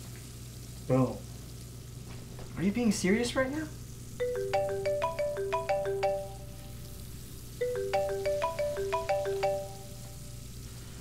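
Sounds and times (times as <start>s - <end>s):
smartphone ringtone melody: 4.2s - 10.5s.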